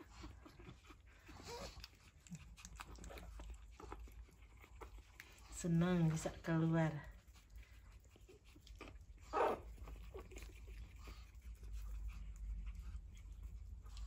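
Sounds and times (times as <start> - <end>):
puppy cry: 8.8 - 10.5.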